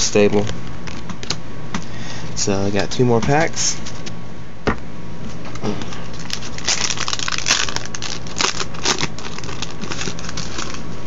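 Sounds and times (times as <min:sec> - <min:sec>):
foil wrapper crinkling: 0:06.1 - 0:10.8.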